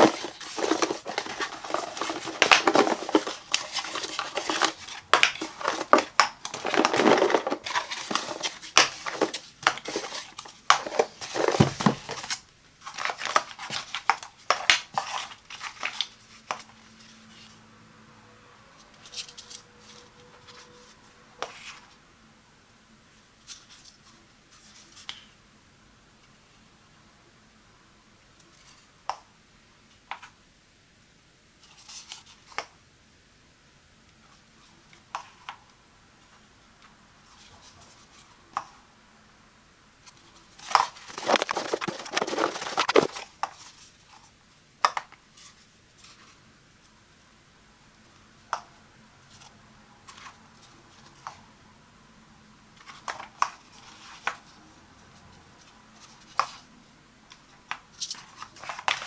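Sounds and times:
plastic pods rattling and scraping: 0.0s - 17.6s, 40.0s - 46.3s, 57.3s - 59.0s.

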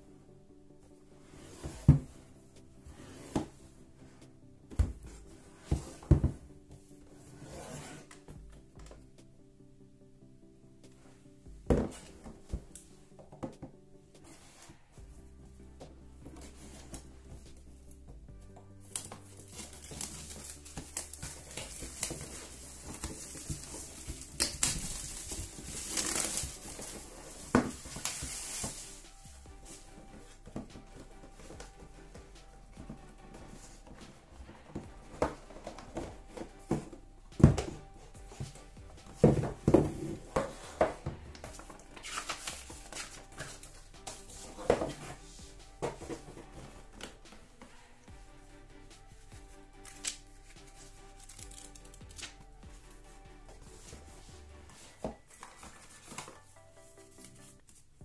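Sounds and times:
soft background music: 0.0s - 58.0s
plastic wrap crinkling: 18.9s - 29.2s.

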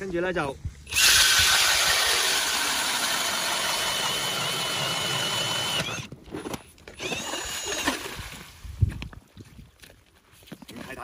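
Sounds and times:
drill motor whine: 0.9s - 6.1s, 7.0s - 8.0s
auger grinding ice: 0.9s - 8.1s.

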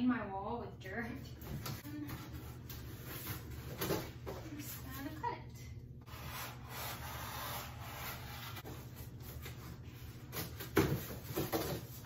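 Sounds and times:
cardboard scraping against wall: 6.1s - 12.0s.

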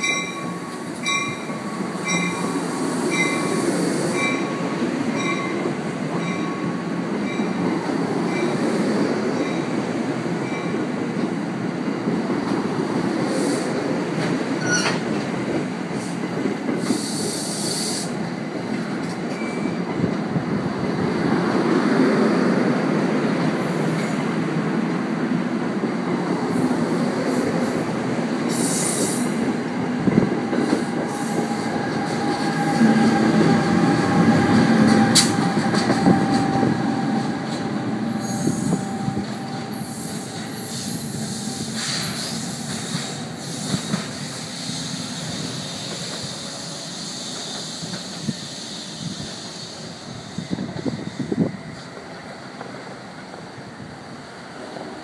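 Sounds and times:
train wheels rumbling on rails: 0.0s - 55.0s
thin squeal: 14.6s - 15.0s.

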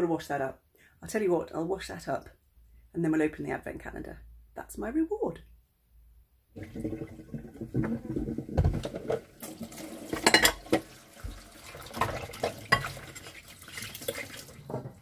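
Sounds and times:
dishes knocking and clattering: 6.6s - 13.2s, 14.6s - 15.0s
running tap splashing water: 6.6s - 15.0s.

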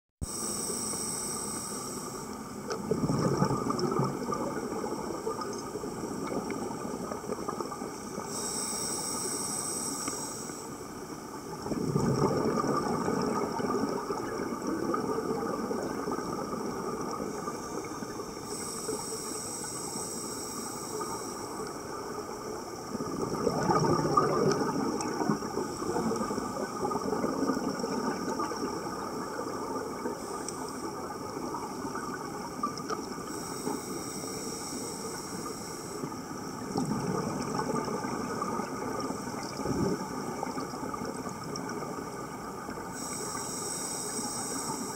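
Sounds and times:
regulator hissing inhale: 0.2s - 2.5s, 8.2s - 11.3s, 17.5s - 22.4s, 33.2s - 36.1s, 42.9s - 44.9s
bubbling exhaust underwater: 0.2s - 44.9s.

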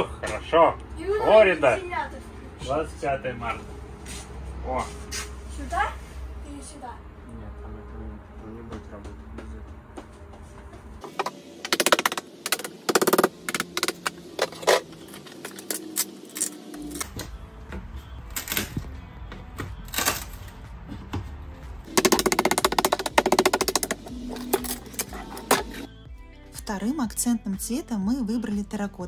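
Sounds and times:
background music: 14.0s - 29.0s.

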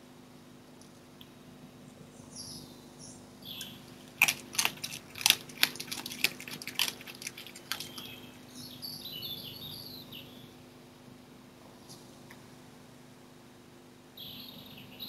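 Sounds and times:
birds singing: 1.9s - 10.8s, 14.2s - 15.0s
fox eating from plastic dish: 3.5s - 8.7s.

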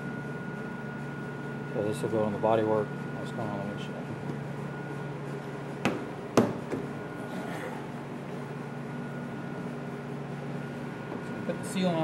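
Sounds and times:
steady background hum: 0.0s - 12.0s
rubber seal knocking on car body: 5.8s - 6.9s.

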